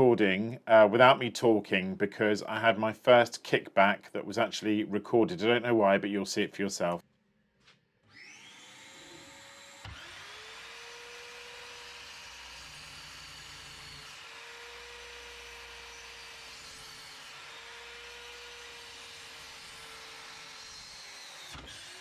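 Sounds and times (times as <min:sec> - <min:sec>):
electric router whining: 0:08.1 - 0:22.0.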